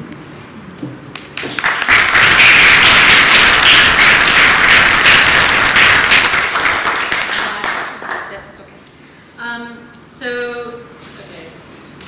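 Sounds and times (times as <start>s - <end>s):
audience applauding: 1.2s - 8.4s.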